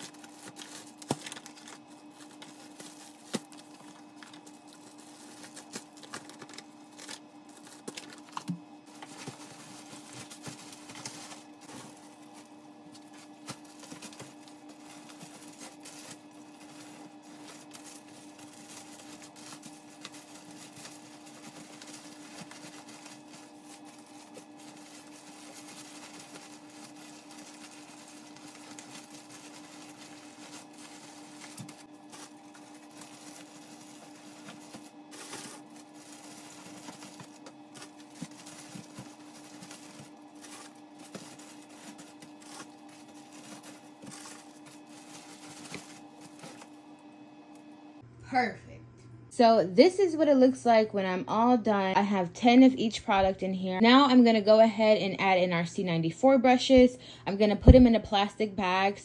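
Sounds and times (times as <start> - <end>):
plastic bags rustling and crinkling: 0.0 - 47.3
steady electrical hum: 0.0 - 59.0.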